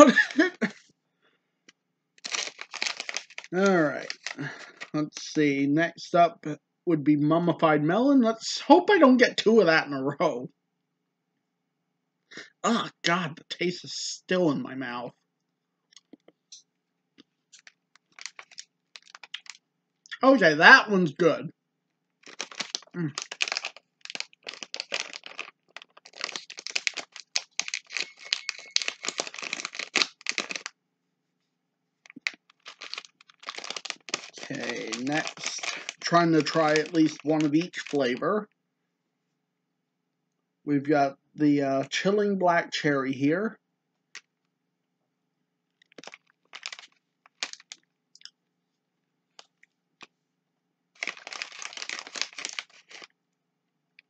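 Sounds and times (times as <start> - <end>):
plastic wrapper crinkling: 0.0 - 0.8, 2.2 - 5.3, 17.5 - 19.6, 22.2 - 30.8, 32.0 - 38.2, 45.8 - 47.9, 51.0 - 53.1
chewing candy: 2.2 - 4.9, 17.6 - 19.6, 22.2 - 30.7, 32.1 - 38.0, 51.0 - 53.1.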